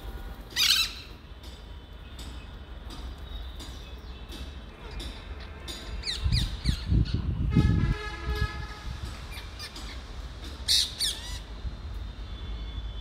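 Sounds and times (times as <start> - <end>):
parakeets screeching: 10.6 - 11.5.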